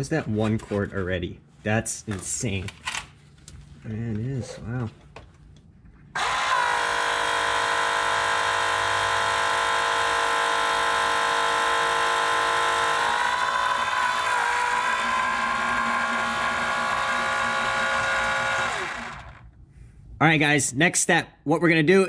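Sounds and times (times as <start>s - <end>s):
electric pump whining: 6.2s - 19.6s.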